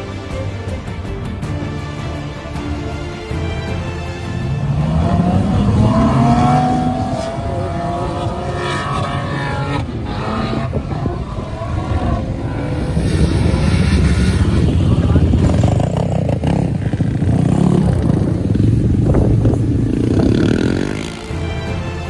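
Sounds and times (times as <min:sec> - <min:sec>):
suv engine revving hard: 0:04.8 - 0:15.6.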